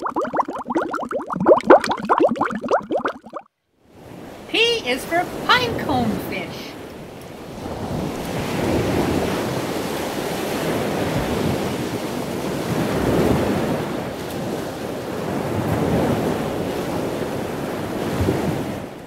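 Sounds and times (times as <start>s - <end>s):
rushing water: 0.0s - 3.4s.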